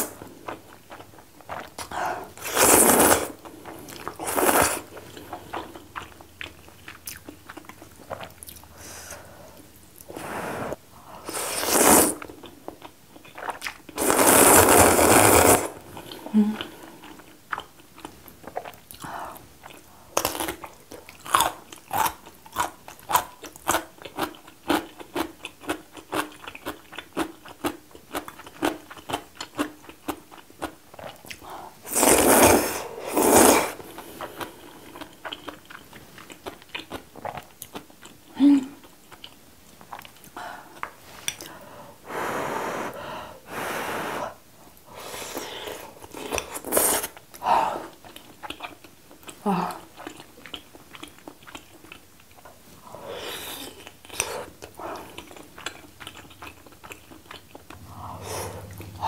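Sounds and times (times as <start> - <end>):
noodle slurping: 1.5 - 5.7, 10.1 - 12.3, 13.4 - 16.2, 31.8 - 34.3
crunchy chewing: 19.6 - 38.2, 53.4 - 59.0.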